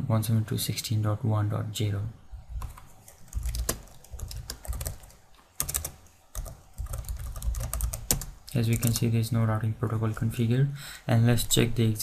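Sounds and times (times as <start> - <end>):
computer keyboard typing: 2.6 - 9.1.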